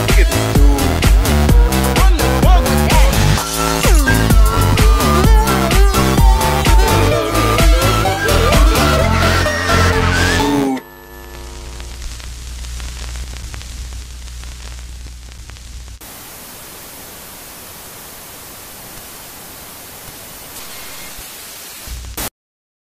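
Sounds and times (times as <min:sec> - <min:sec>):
low hum with crackling: 0:10.3 - 0:21.2
white noise hiss: 0:11.3 - 0:22.3.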